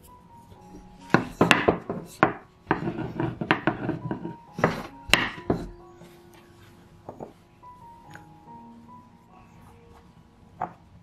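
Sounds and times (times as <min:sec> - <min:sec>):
rolling pin rolling over dough: 0:00.0 - 0:07.4.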